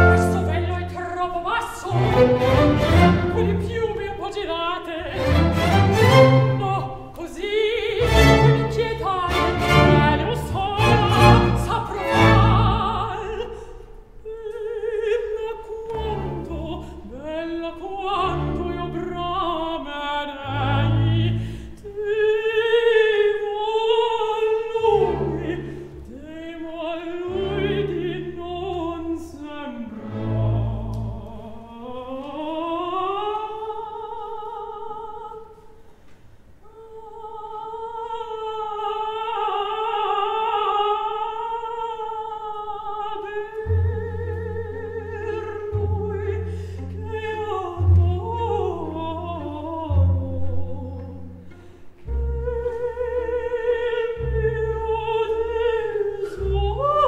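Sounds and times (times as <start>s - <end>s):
orchestra low chords: 0.0s - 1.0s, 1.8s - 4.2s, 5.0s - 7.0s, 8.0s - 13.2s
woman singing opera: 0.0s - 35.8s, 36.6s - 57.0s.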